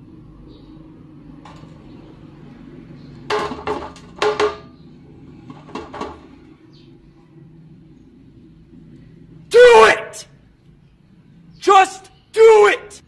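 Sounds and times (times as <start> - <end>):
spatula knocking on metal tray: 3.3 - 4.7.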